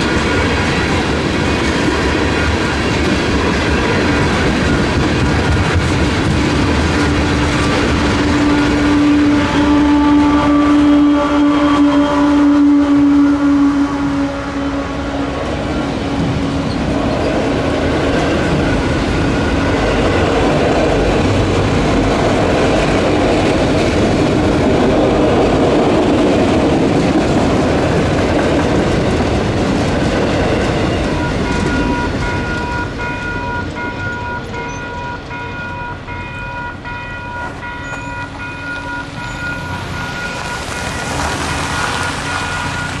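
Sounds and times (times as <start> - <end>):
crossing bell ringing: 0.0 - 14.4, 15.3 - 23.8, 30.4 - 43.0
train wheels rumbling on rails: 0.0 - 43.0.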